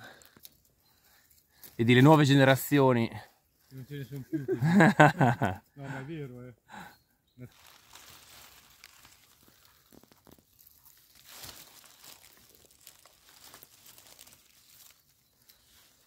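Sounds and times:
dry leaves rustling and crackling: 0:07.5 - 0:16.0.

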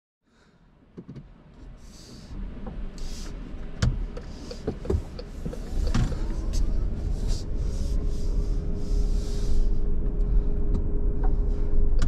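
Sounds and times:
van cabin low rumble: 0:00.3 - 0:12.0
knocks and clicks: 0:01.0 - 0:01.3.

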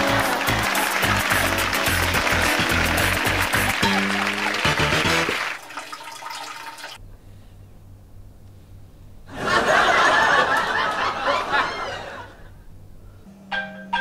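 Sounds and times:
studio audience laughing: 0:00.0 - 0:05.2, 0:09.3 - 0:12.5
toilet flushing: 0:00.0 - 0:07.0.

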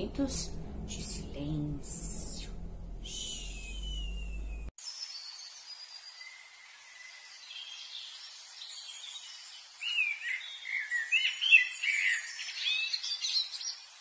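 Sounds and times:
birds singing: 0:03.0 - 0:14.0.

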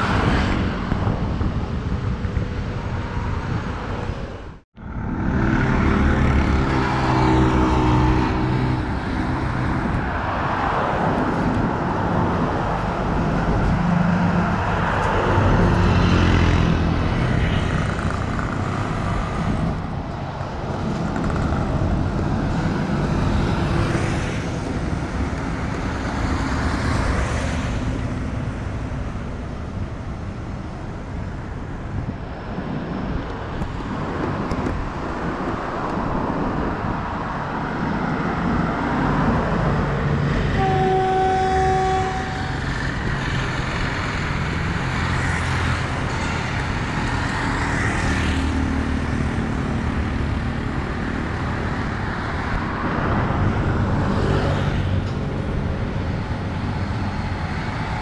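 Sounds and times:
road traffic passing: 0:00.0 - 0:58.0
motorcycles going by: 0:04.8 - 0:09.6
car horn: 0:40.5 - 0:42.6.

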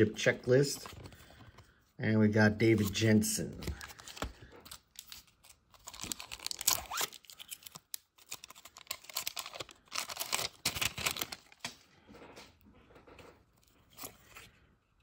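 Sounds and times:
foil wrapper crinkling and tearing: 0:03.7 - 0:11.8.

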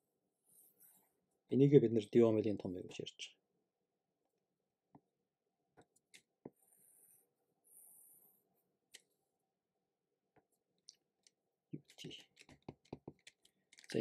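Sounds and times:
stylus tapping on tablet: 0:12.5 - 0:13.3.

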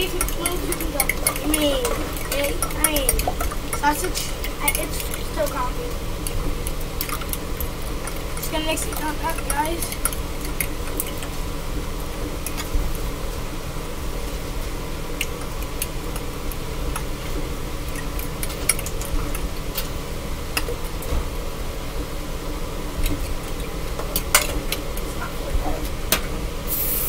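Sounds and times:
fork beating eggs in glass bowl: 0:00.0 - 0:11.3
steady low hum: 0:00.0 - 0:27.0.

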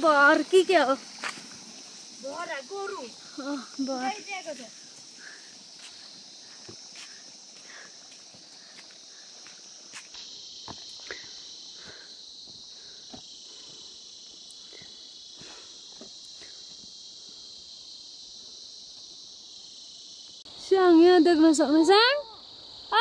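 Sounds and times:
high-pitched insect chorus: 0:00.0 - 0:23.0
soft footsteps on dirt path: 0:00.4 - 0:17.0.

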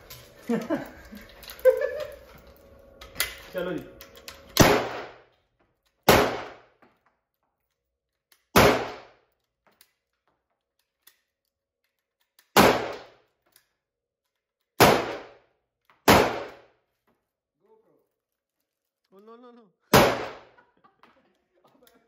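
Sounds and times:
rifle shots with echo: 0:04.6 - 0:05.2, 0:06.1 - 0:06.7, 0:08.6 - 0:09.2, 0:12.6 - 0:13.1, 0:14.8 - 0:15.4, 0:16.1 - 0:16.6, 0:19.9 - 0:20.5.

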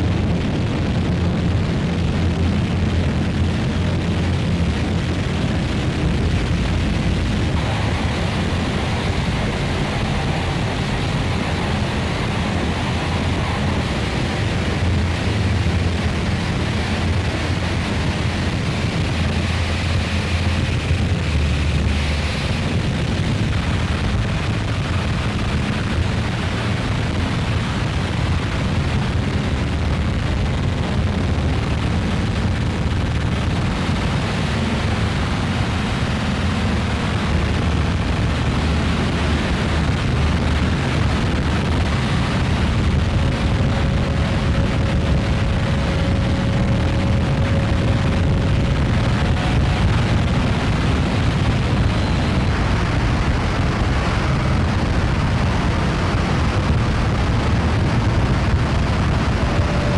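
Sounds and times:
electronic drone music: 0:04.1 - 0:27.2.

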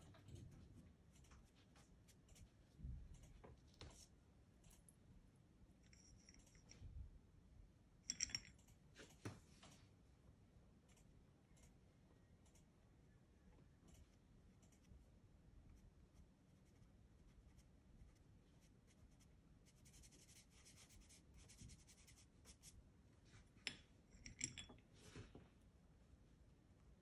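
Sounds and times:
pastel scratching on paper: 0:15.7 - 0:22.8.

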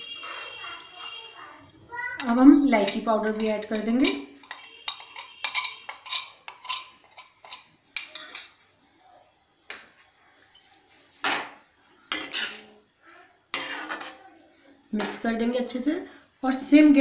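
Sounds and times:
metal spoon tapping a plate: 0:02.2 - 0:08.6.

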